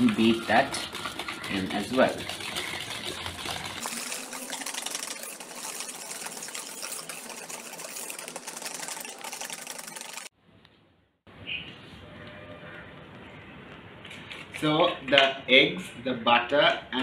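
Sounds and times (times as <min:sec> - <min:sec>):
whisk beating in metal bowl: 0:00.0 - 0:10.3.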